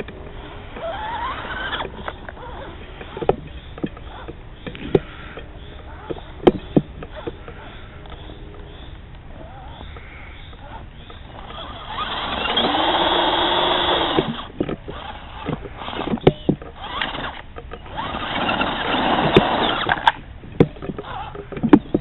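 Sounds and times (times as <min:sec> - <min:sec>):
electric motor and gears whining: 0:00.0 - 0:22.0
clicks and knocks on ground: 0:14.0 - 0:22.0.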